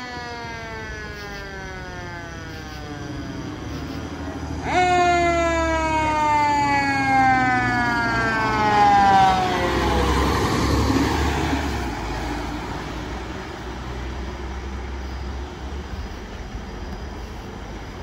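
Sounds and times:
mechanical siren winding down: 0.0s - 4.0s, 4.6s - 10.7s
truck engine and tyre rumble: 0.0s - 18.0s.

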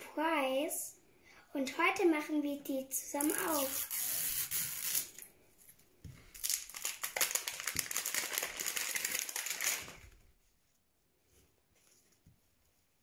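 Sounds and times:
plastic wrapper crinkling: 6.2s - 10.3s.

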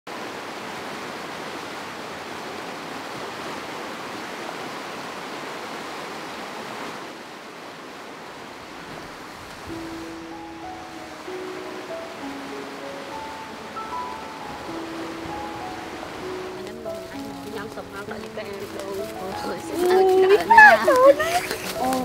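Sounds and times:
river rapids rushing over rocks: 0.1s - 22.0s
held musical notes: 9.7s - 22.0s.

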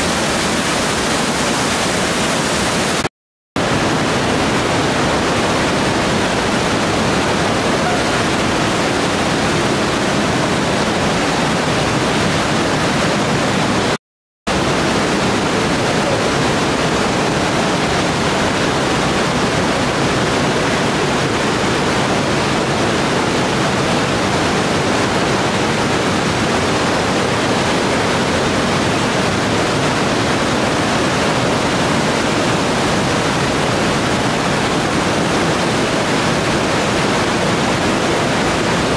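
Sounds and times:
waterfall rushing: 0.0s - 38.9s.

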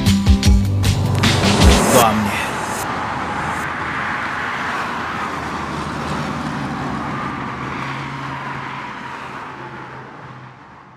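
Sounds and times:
vehicles passing: 0.0s - 10.9s
whine falling in pitch: 0.6s - 3.8s.

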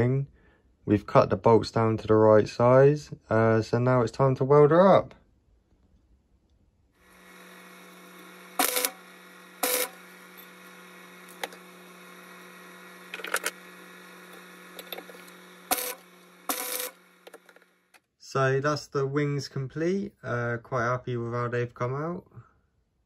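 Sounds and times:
welder electrical hum: 6.9s - 19.3s
short tack welds: 7.1s - 17.7s.

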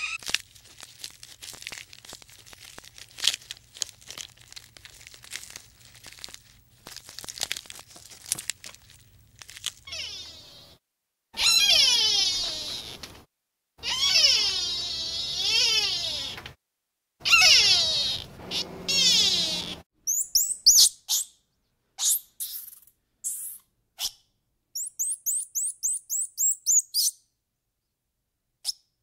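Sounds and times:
drawn-out animal calls: 17.2s - 19.8s.

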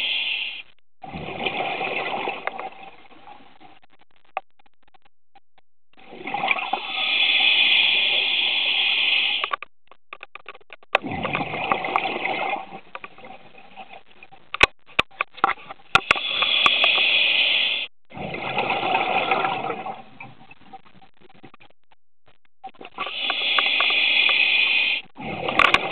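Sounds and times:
diver exhaling bubbles underwater: 1.0s - 2.9s, 11.0s - 12.8s, 16.2s - 20.1s, 23.0s - 25.9s
sharp clicks: 14.5s - 17.0s.

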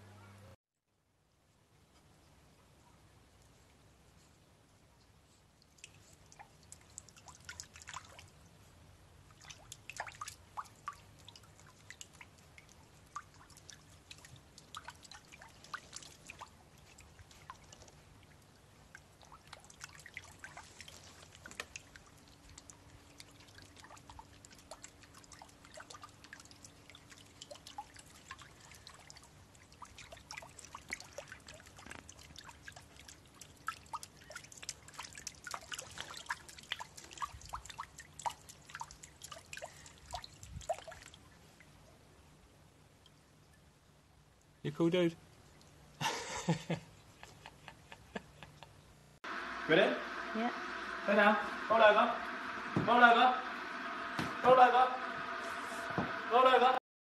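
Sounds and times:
light water splashes and drips: 1.8s - 47.5s.

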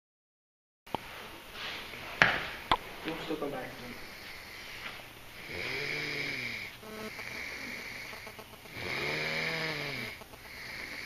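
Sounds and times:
person snoring: 3.8s - 11.0s.

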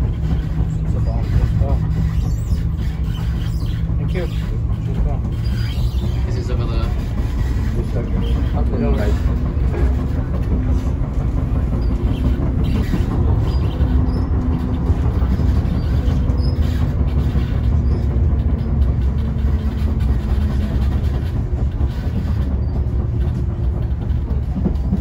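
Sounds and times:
train rumbling on rails: 0.0s - 25.0s
train wheel clicks: 0.0s - 25.0s.

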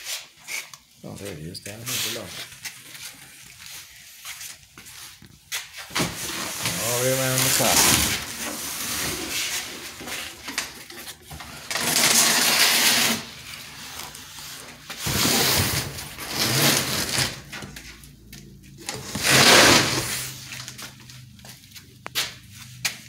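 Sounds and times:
rustling and scraping: 0.0s - 23.0s.

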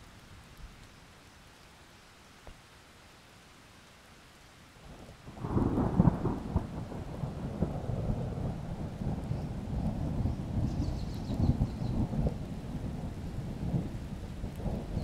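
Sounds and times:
steady rain falling: 0.0s - 15.0s
thunder rumbling: 5.3s - 15.0s.

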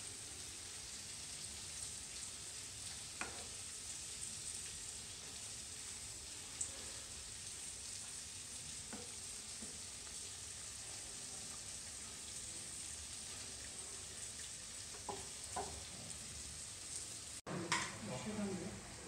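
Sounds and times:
curry boiling and sizzling: 0.0s - 19.0s
spatula stirring: 2.9s - 3.7s
spatula knocking on pan: 14.9s - 15.9s.

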